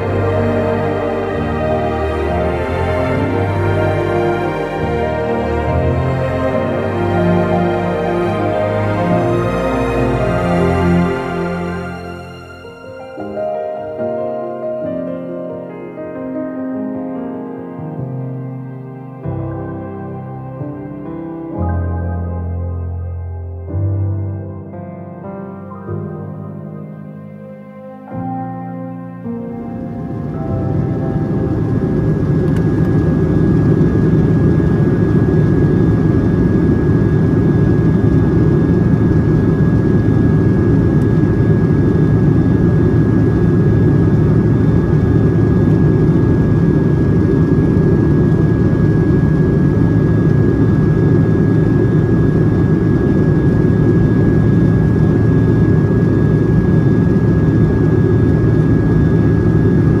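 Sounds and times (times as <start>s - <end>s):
aircraft cabin engine rush: 29.7s - 60.0s.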